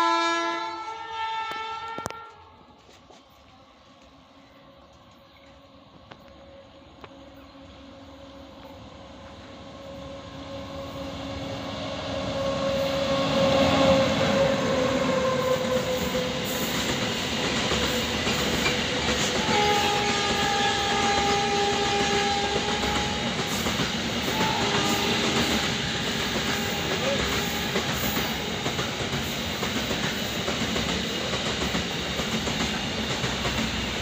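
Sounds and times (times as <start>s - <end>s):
high horn-like tone: 0.0s - 2.7s, 19.3s - 23.3s, 24.2s - 28.3s
train horn blasts: 0.0s - 2.7s, 9.8s - 16.7s, 18.0s - 23.6s, 24.2s - 28.5s
train rumble and wheel clatter: 1.4s - 34.0s.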